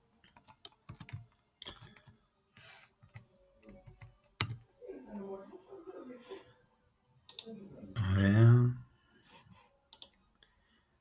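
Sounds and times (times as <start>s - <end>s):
computer keyboard typing: 0.2s - 2.2s, 3.0s - 4.7s, 9.9s - 10.2s.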